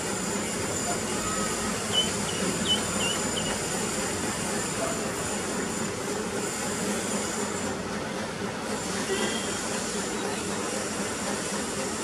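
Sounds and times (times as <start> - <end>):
outdoor rumble and hiss: 0.0 - 12.0
small bird chirping: 1.2 - 3.7.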